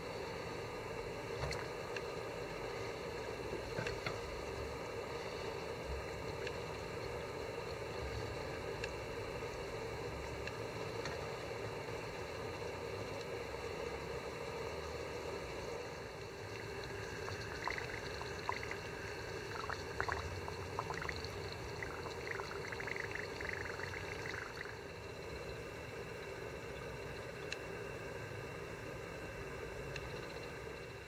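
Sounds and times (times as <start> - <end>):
steady low hiss: 0.0 - 31.0
leather fizzing and bubbling in water: 16.6 - 24.8.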